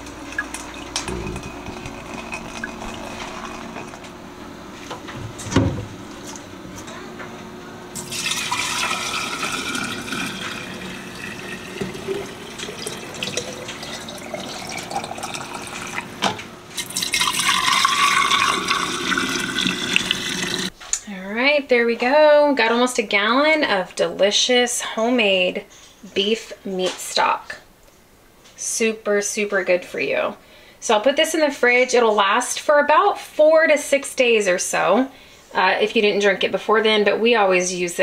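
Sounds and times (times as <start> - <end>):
liquid pouring into glass jar: 0.3 - 4.1, 8.0 - 20.7.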